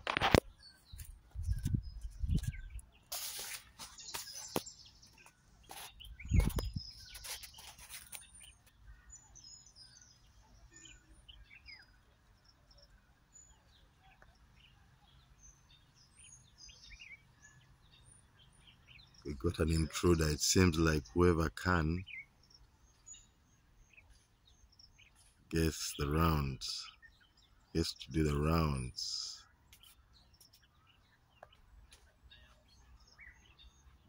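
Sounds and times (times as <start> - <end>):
small birds chirping: 0.0 - 34.0
leaves rustling: 3.0 - 4.6, 5.6 - 8.4.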